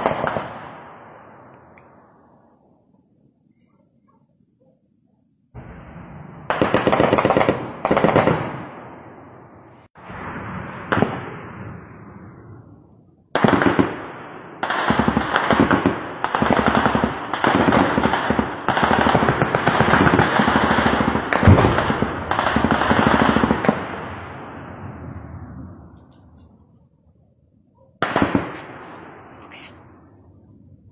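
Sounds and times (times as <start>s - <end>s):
gunshots: 0.0s - 1.4s, 5.6s - 9.1s, 10.0s - 11.9s, 13.3s - 24.8s, 28.0s - 29.9s
machine-gun fire: 6.4s - 8.7s, 13.3s - 24.2s, 28.0s - 29.3s.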